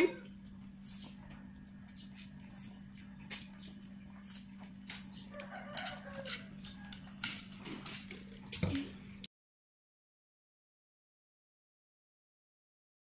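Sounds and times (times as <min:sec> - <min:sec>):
steady low hum: 0:00.0 - 0:09.3
chopsticks clicking against bowl: 0:02.9 - 0:08.6.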